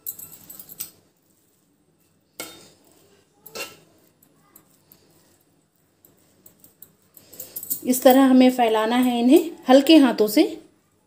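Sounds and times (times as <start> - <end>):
metal spatula scraping pot: 1.3 - 5.2.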